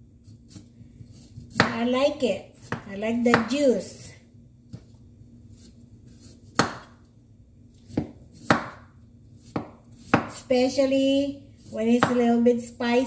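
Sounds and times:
knife chopping ginger on wooden board: 0:00.5 - 0:01.8, 0:02.6 - 0:03.6, 0:06.2 - 0:07.0, 0:07.8 - 0:10.5, 0:11.6 - 0:12.3.

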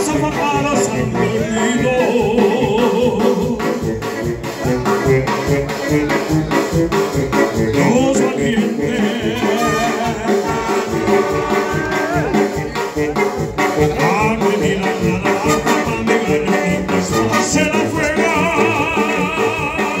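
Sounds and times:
man singing into microphone: 0:00.0 - 0:03.9, 0:07.6 - 0:12.4, 0:13.8 - 0:20.0
live latin band playing: 0:00.0 - 0:20.0.

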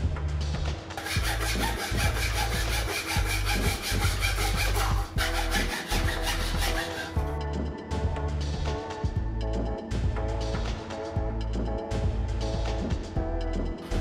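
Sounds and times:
fretsaw cutting plywood: 0:01.0 - 0:07.4.

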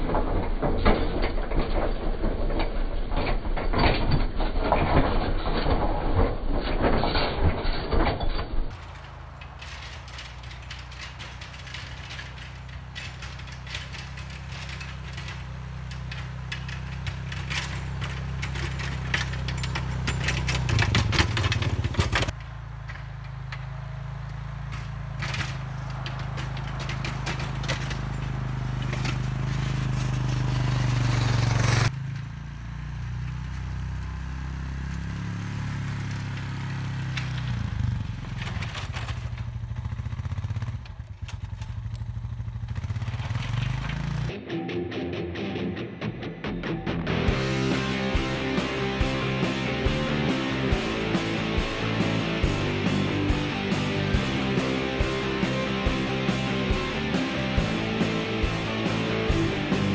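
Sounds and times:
quad bike engine under load: 0:00.0 - 0:44.4, 0:46.8 - 0:59.9
snow scraping against plow blade: 0:08.7 - 0:22.4, 0:24.6 - 0:31.9.

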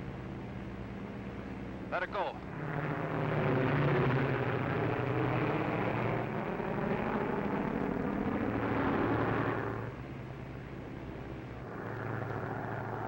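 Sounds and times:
propeller plane engines droning: 0:00.0 - 0:13.0.

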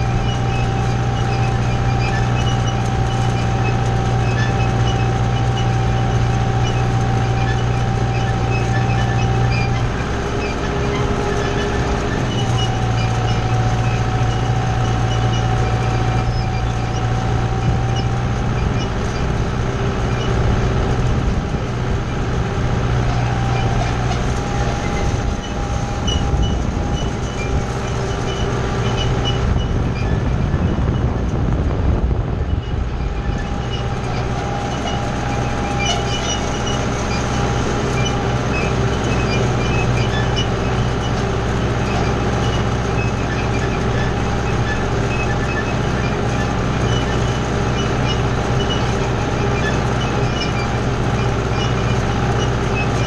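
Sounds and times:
tractor engine hum: 0:00.0 - 0:53.0
rake tine wheels clattering: 0:33.0 - 0:53.0.

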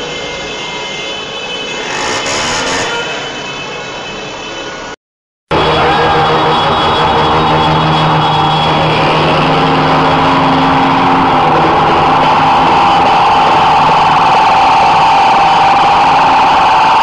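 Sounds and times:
long held horn tones: 0:01.6 - 0:04.1
car engines passing: 0:05.5 - 0:16.9.

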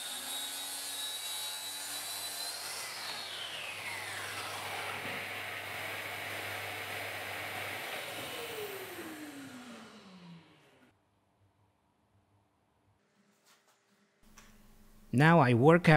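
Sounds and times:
saw motor winding down: 0:02.8 - 0:10.9.

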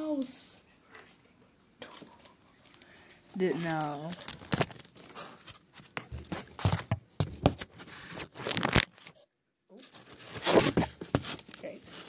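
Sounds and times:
packaging tearing and rustling: 0:03.4 - 0:05.6, 0:07.7 - 0:09.1, 0:09.9 - 0:12.0.

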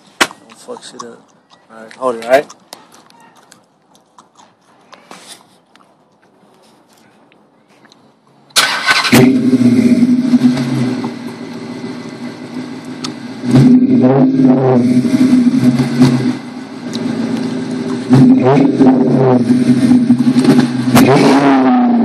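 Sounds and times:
car engine idling: 0:08.5 - 0:22.0
car engine starting: 0:08.5 - 0:22.0
car engine revving: 0:08.6 - 0:22.0.

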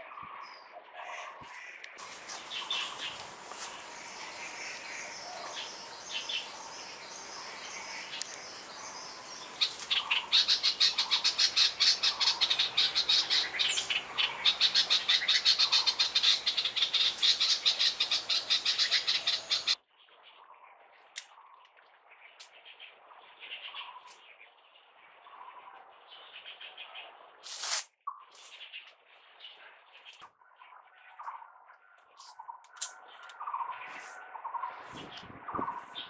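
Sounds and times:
birds chirping: 0:00.0 - 0:20.6, 0:28.1 - 0:36.0.

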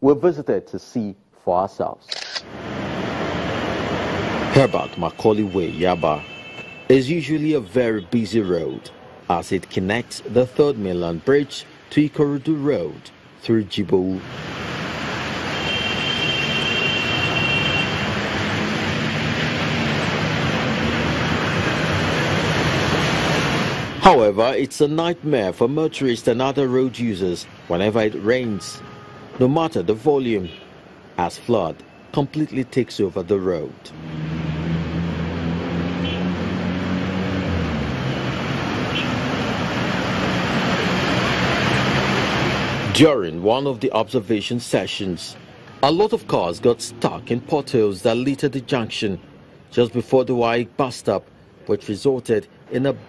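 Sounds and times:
low car engine noise: 0:14.1 - 0:43.9
tyres churning flood water: 0:18.1 - 0:24.0, 0:36.9 - 0:43.0.

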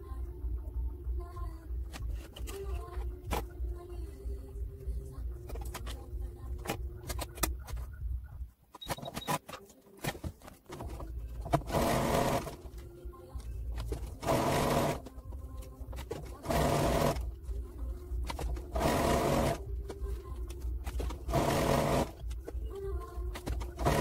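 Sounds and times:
sewing machine stitching: 0:11.5 - 0:12.6, 0:14.0 - 0:15.1, 0:16.0 - 0:17.2, 0:18.2 - 0:19.6, 0:20.8 - 0:22.2, 0:23.3 - 0:24.0.

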